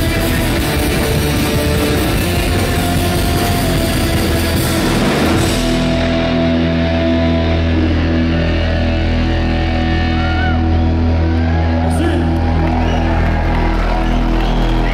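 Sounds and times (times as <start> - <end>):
drums and cymbals crashing: 0.0 - 6.6
bass guitar: 0.0 - 14.9
distorted electric guitars: 0.0 - 14.9.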